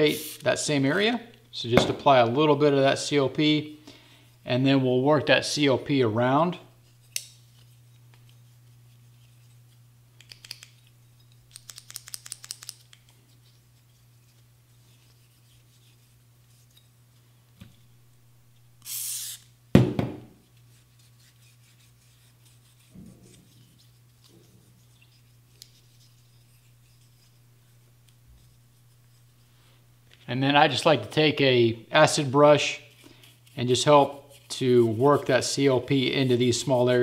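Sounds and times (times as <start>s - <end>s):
short hiss: 18.8s - 19.4s
loud knock: 19.8s - 20.3s.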